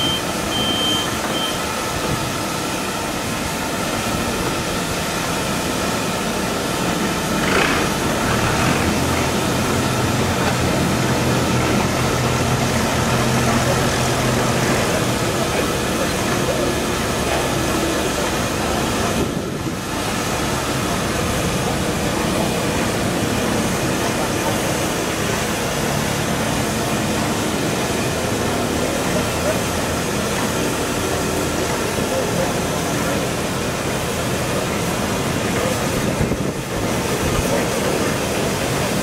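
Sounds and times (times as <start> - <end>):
steam hissing: 0.0 - 39.0
wind buffeting microphone: 35.9 - 37.4.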